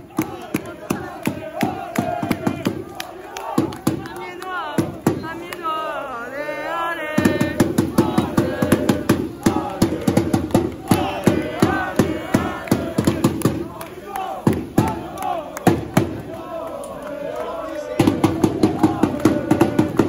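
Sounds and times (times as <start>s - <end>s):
crowd chanting and shouting: 0.0s - 20.0s
sharp cracks and bangs: 7.2s - 17.0s, 18.0s - 20.0s.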